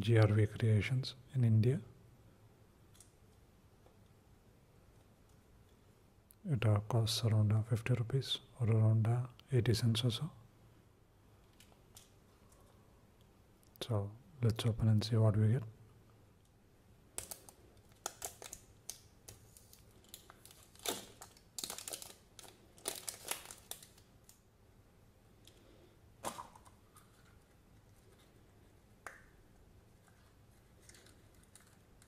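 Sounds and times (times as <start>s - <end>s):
plastic egg halves clicking open: 17.2s - 19.4s
wrapper crinkling and tearing: 17.2s - 24.4s, 30.1s - 32.0s.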